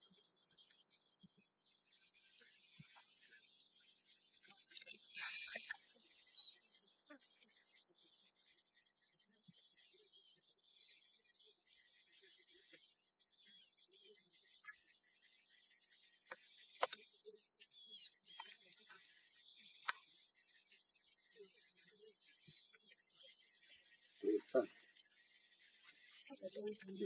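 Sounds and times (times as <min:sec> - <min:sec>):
insects trilling: 0:00.0 - 0:27.0
sharp clicks: 0:16.8 - 0:17.0.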